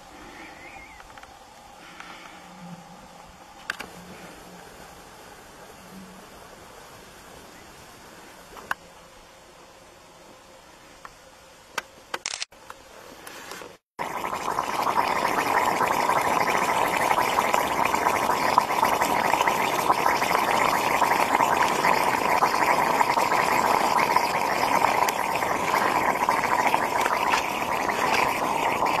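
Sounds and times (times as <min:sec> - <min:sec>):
flames burning with crackles: 0:14.0 - 0:29.0.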